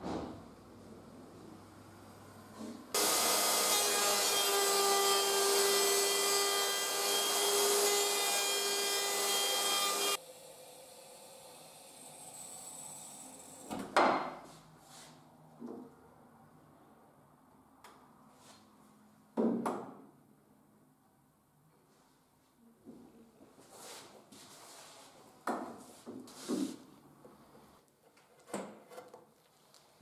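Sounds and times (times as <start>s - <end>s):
router high whine cutting wood: 3.0s - 10.2s.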